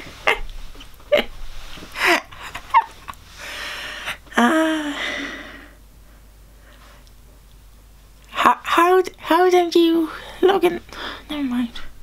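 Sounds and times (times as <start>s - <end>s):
person exhaling and sighing: 3.4s - 5.8s.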